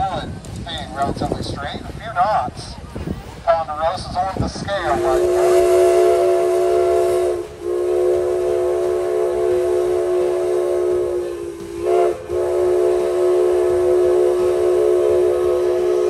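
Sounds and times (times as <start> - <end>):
steam locomotive whistle blasts: 4.8 - 16.0.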